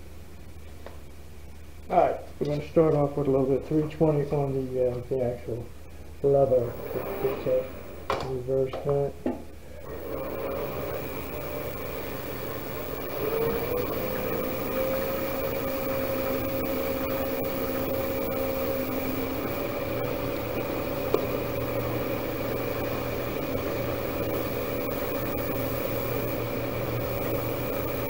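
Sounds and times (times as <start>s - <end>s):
lathe motor humming: 6.4s - 8.3s, 9.8s - 28.0s.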